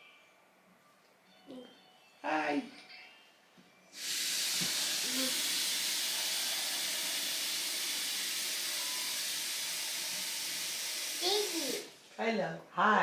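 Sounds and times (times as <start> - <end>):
steady hiss: 3.9 - 12.0.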